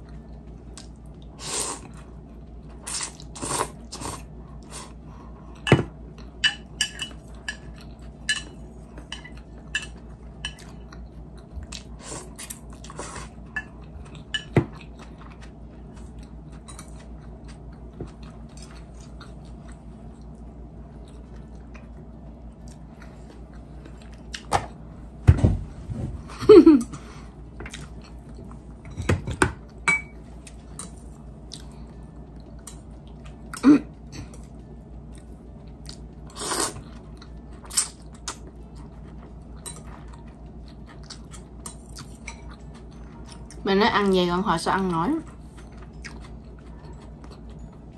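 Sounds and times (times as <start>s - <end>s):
chewing and mouth sounds: 7.0s - 24.5s, 30.4s - 43.6s, 45.2s - 47.9s.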